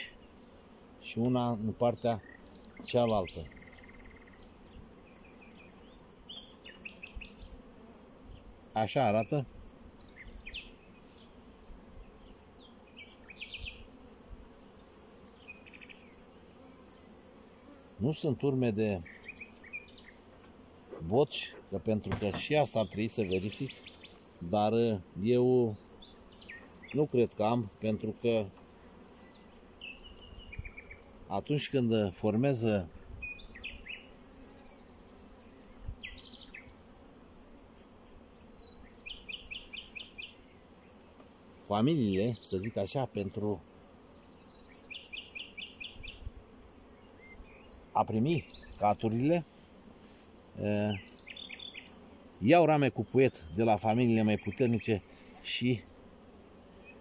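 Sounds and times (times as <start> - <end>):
bees buzzing: 0.0 - 57.0
small bird chirping: 2.2 - 7.6, 12.6 - 17.8, 29.2 - 31.2, 33.2 - 36.9, 38.5 - 40.6, 44.0 - 46.3, 50.9 - 52.1.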